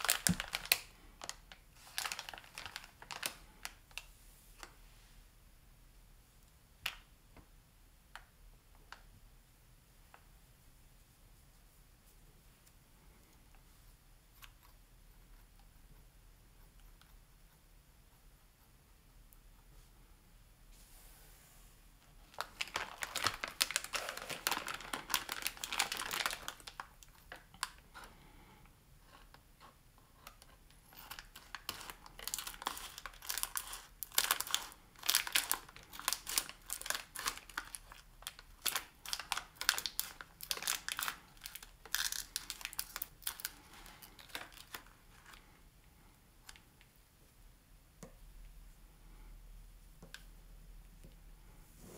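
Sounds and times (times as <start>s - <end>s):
packaging crinkling and rustling: 0.0s - 4.1s, 22.1s - 27.8s, 30.2s - 45.4s.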